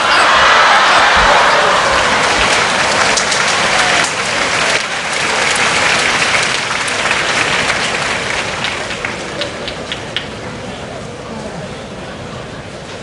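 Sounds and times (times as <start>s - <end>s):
crowd cheering and applauding: 0.0s - 10.4s.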